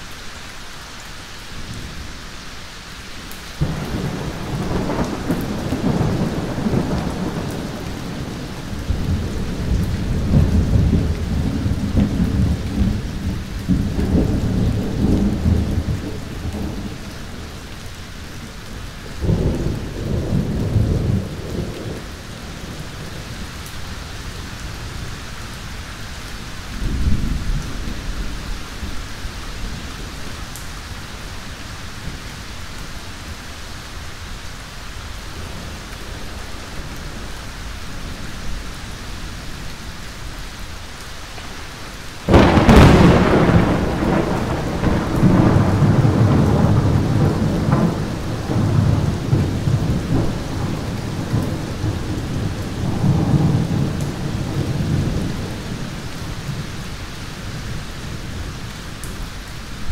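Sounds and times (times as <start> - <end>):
steady rain: 0.0 - 59.9
rolling thunder: 3.6 - 17.6, 41.6 - 56.8.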